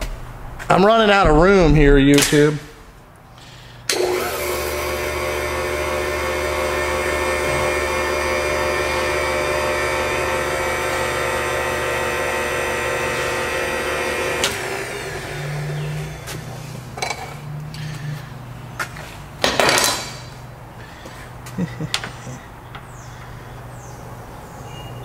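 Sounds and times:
electric motor whining: 0:03.9 - 0:16.6.

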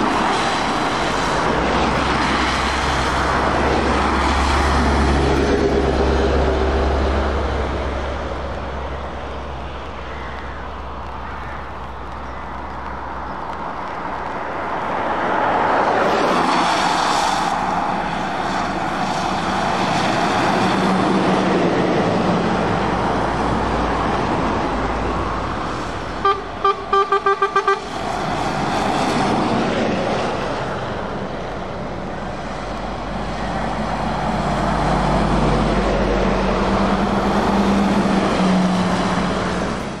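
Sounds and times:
diesel truck engine drone: 0:00.0 - 0:40.0
tyre hiss on wet road: 0:10.7 - 0:20.9
truck horn toots: 0:26.2 - 0:27.9.

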